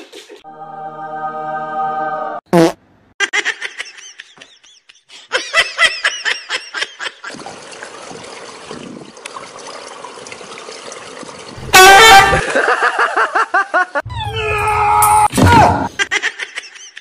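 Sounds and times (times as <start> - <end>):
person laughing: 3.2 - 7.4, 12.2 - 14.1
loud cry: 11.7 - 12.6, 14.1 - 15.9.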